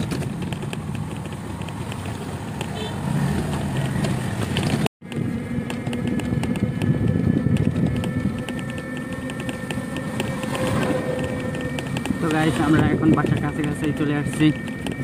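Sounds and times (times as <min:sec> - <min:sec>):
rapid light rattling ticks: 0:00.0 - 0:02.9, 0:03.5 - 0:15.0
vehicle running hum: 0:00.0 - 0:15.0
thin high whine: 0:05.4 - 0:15.0.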